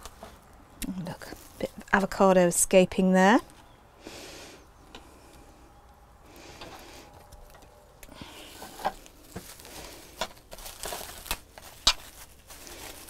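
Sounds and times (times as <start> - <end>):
cling film crinkling: 6.7 - 13.0.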